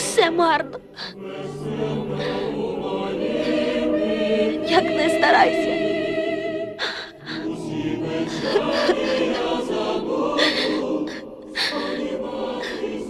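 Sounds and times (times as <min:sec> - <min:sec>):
wordless choir singing softly: 0:00.0 - 0:13.0.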